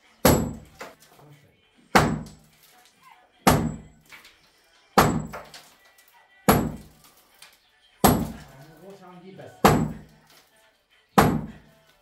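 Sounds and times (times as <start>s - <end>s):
sledgehammer thudding on wall: 0.2s - 1.0s, 1.9s - 2.5s, 3.4s - 4.0s, 5.0s - 5.6s, 6.5s - 7.0s, 8.0s - 8.5s, 9.6s - 10.1s, 11.2s - 11.7s.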